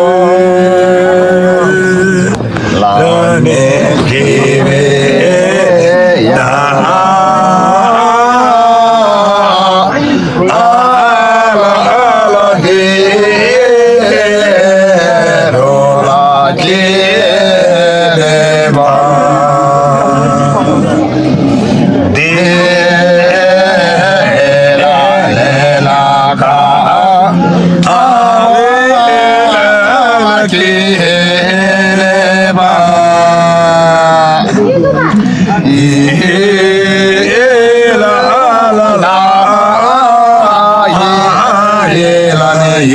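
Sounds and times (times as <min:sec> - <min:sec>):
two men singing folk song: 0:00.0 - 0:42.9.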